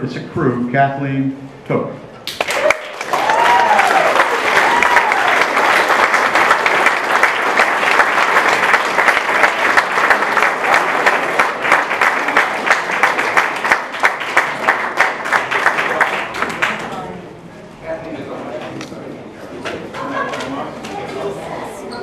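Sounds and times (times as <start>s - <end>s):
crowd clapping: 2.2s - 17.2s
person whooping: 2.6s - 5.4s.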